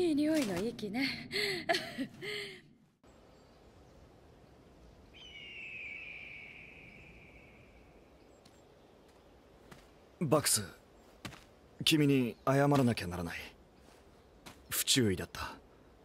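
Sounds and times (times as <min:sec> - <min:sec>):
woman chuckling: 0:01.3 - 0:02.6.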